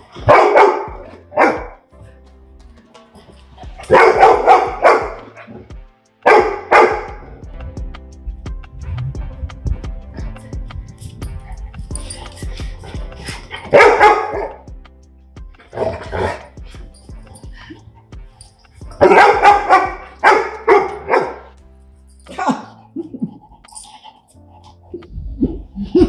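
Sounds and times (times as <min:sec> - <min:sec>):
background music: 0:00.0 - 0:26.0
dog barking: 0:00.2 - 0:01.8, 0:03.8 - 0:05.6, 0:06.2 - 0:07.2, 0:13.6 - 0:14.7, 0:19.0 - 0:21.5.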